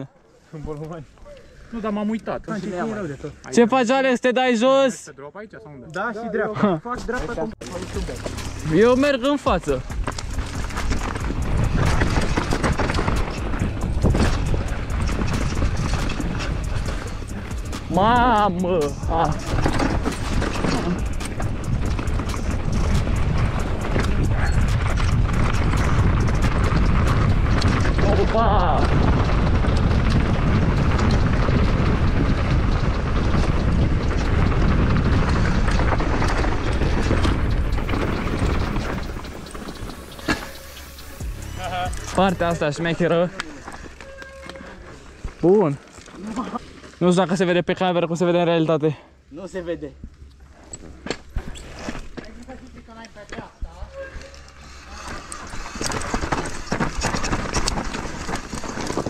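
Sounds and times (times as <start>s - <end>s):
bike rattling over rocks: 6.9s - 48.6s, 49.4s - 59.0s
wind rumble on microphone: 7.6s - 44.5s.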